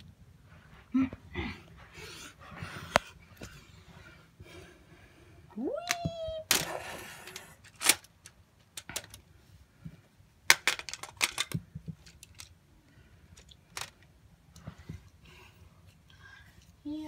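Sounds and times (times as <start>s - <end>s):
plastic parts clicking: 5.9s - 9.2s, 10.5s - 12.6s, 13.3s - 14.1s.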